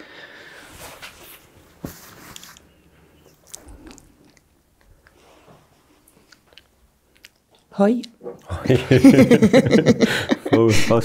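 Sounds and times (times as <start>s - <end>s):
cloth blindfold rustling: 0.6s - 3.4s
small handling noises: 0.7s - 8.4s.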